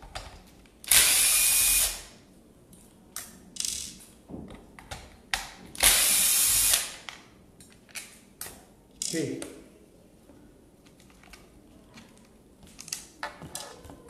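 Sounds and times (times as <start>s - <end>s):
cordless drill running: 0.9s - 2.0s, 5.8s - 6.9s.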